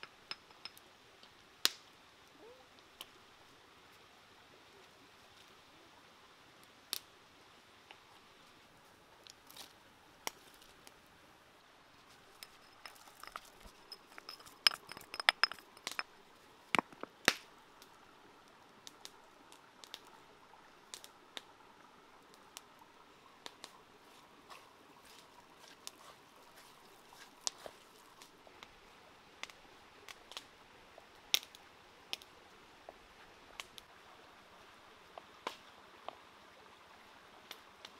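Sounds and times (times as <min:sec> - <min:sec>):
chillies crushed on stone: 0:12.4 - 0:16.1, 0:16.8 - 0:17.1.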